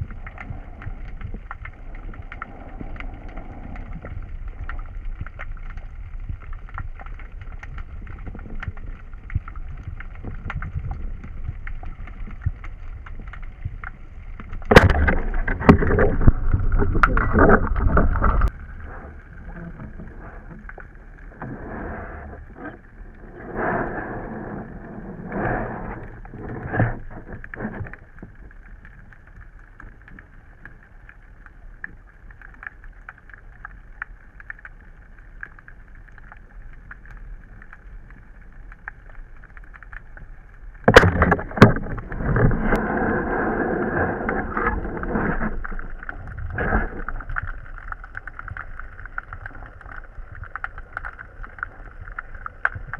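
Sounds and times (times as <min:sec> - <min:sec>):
muffled underwater swishing: 0:07.9 - 0:28.0, 0:40.6 - 0:52.9.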